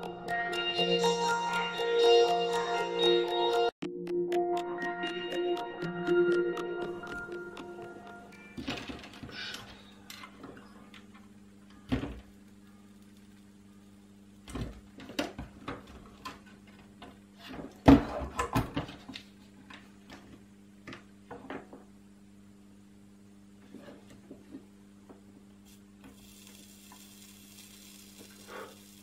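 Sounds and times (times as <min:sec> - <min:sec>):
faint low hum: 0:08.2 - 0:29.0.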